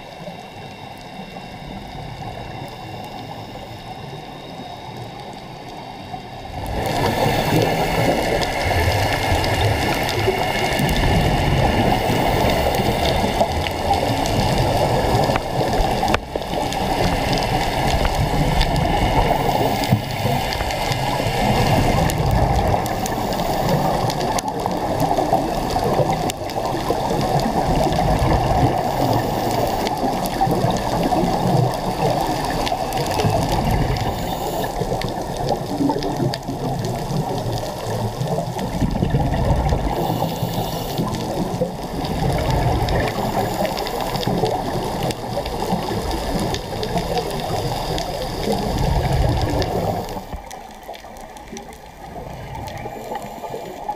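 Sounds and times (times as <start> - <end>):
muffled underwater rushing: 0.0 - 53.9.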